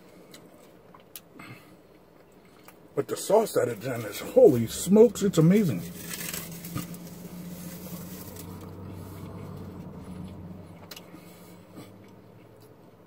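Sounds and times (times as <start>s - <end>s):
car cabin hum: 3.1s - 13.0s
foil wrapper clicks: 5.9s - 7.2s.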